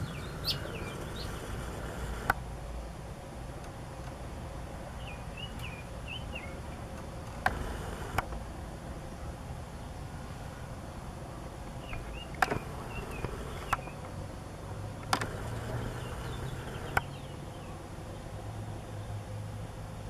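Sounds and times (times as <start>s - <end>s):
sharp clicks: 11.9s - 13.9s, 15.0s - 17.1s.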